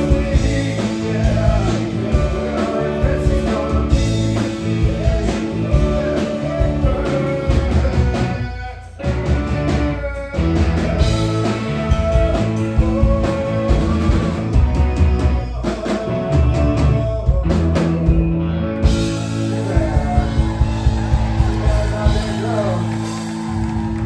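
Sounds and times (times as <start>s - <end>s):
man singing into a microphone: 0.0s - 9.0s, 9.8s - 18.2s, 19.4s - 20.8s
live rock band playing: 0.0s - 24.0s.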